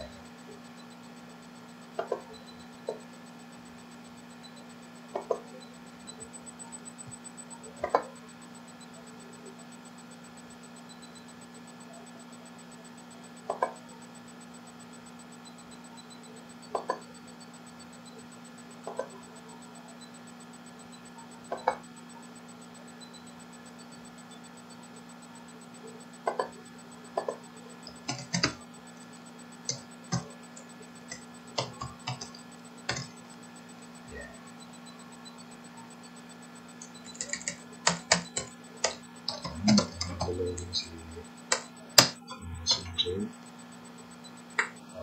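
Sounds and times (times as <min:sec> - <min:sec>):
low electrical hum: 0:00.0 - 0:45.0
mouse and keyboard clicks: 0:27.2 - 0:28.6, 0:31.0 - 0:33.2, 0:36.8 - 0:42.8.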